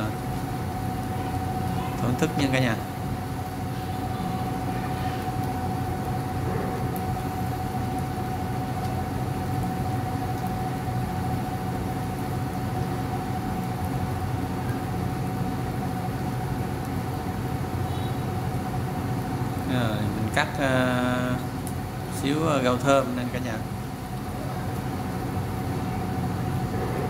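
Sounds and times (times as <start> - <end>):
chicken frying in a skillet: 0.0 - 26.8
constant whine: 0.0 - 27.0
cooling fan hum: 0.0 - 27.0.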